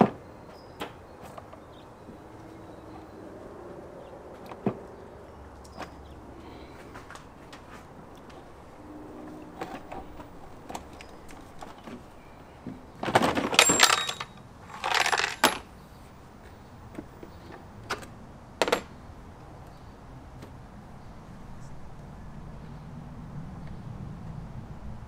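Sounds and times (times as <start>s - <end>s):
plastic housing clattering: 13.0s - 15.6s, 17.9s - 18.9s.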